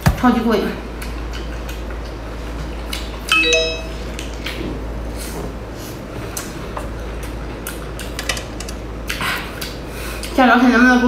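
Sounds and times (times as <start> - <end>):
bell-like ding: 3.3 - 4.1.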